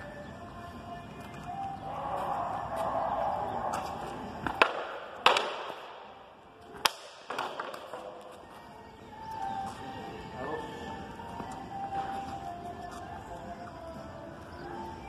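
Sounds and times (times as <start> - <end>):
sabers knocking on wooden shields: 4.4 - 5.9.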